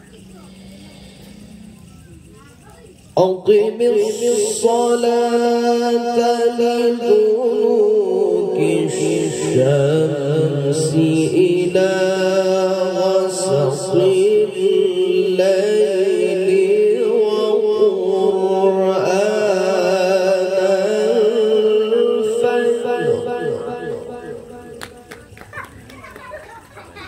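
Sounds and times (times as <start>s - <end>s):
man chanting through pa system: 0.0s - 25.0s.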